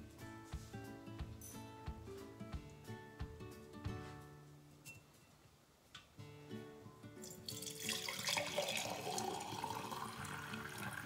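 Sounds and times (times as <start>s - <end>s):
background music: 0.0s - 5.2s, 6.2s - 11.0s
water pouring into glass jar: 7.3s - 11.0s.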